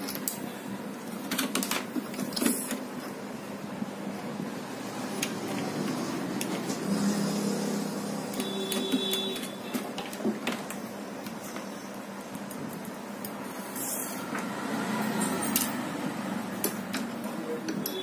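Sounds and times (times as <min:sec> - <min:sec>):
small parts clicking and clinking: 0:15.2 - 0:15.8.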